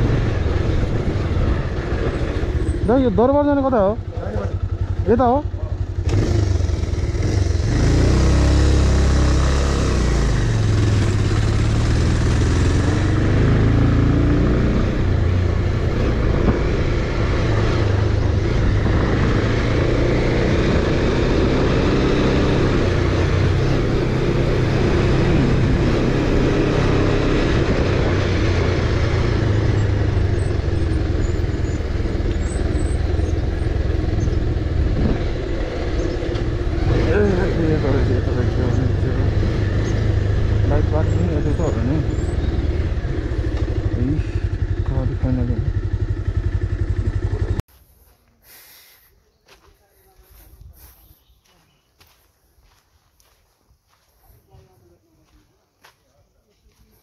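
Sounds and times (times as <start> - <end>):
motorcycle engine running: 0.0 - 48.2.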